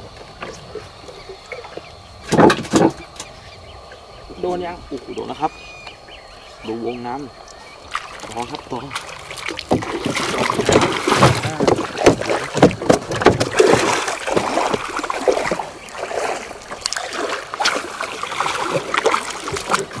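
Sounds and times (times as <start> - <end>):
water splashing at a boat: 7.4 - 20.0.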